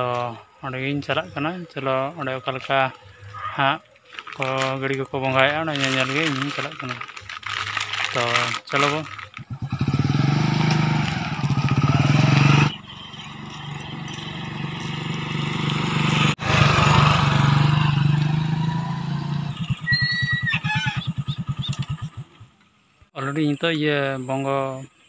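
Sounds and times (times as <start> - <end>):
motorcycle engine running: 8.3 - 22.6.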